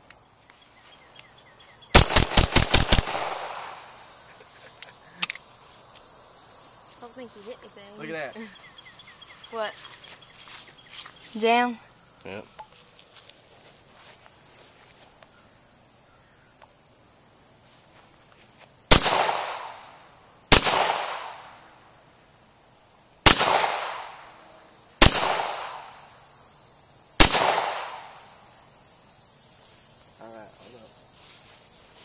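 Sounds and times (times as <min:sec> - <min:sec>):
pistol shots: 0:01.9 - 0:04.0, 0:18.9 - 0:19.9, 0:20.5 - 0:21.6, 0:23.3 - 0:24.2, 0:25.0 - 0:26.0, 0:27.2 - 0:28.2.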